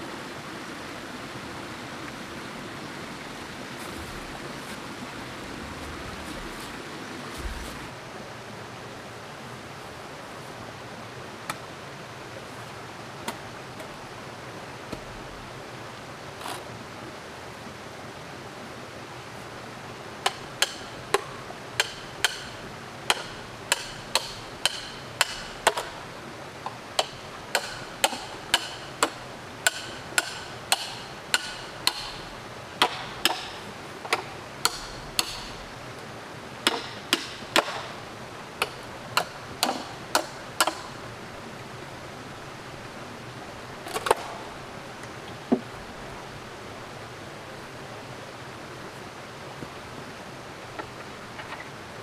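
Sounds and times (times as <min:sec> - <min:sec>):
hand tool striking bamboo: 0:20.2 - 0:25.9, 0:27.0 - 0:32.2, 0:32.8 - 0:35.6, 0:36.6 - 0:37.9, 0:38.6 - 0:41.0.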